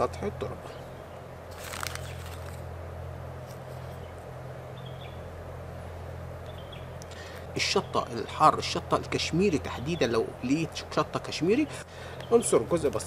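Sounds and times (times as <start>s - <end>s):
steady low hum: 0.0s - 13.0s
plastic bag rustling: 1.5s - 2.6s.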